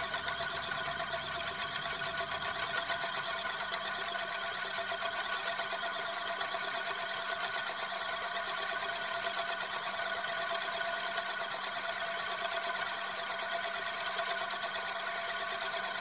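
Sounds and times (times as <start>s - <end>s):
spinning metal disc whirring: 0.0s - 16.0s.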